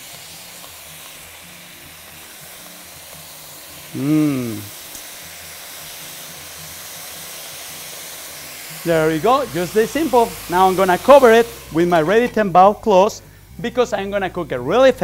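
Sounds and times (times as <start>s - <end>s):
food sizzling in a skillet: 0.0s - 15.0s
quiet background music: 0.0s - 15.0s
short vocal sound: 3.9s - 4.7s.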